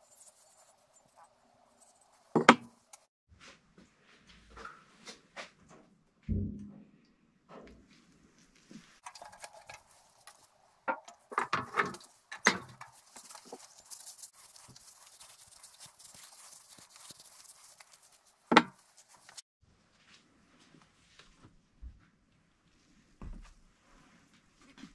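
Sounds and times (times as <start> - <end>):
rag rubbing over metal: 9.0 - 19.4.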